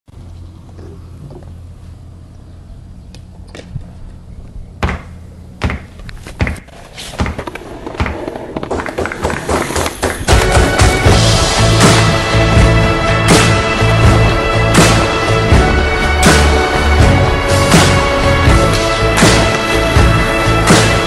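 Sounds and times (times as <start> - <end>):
skateboard clacks and landing thuds: 4.8 - 11.0
skateboard wheels rolling on concrete: 6.0 - 11.3.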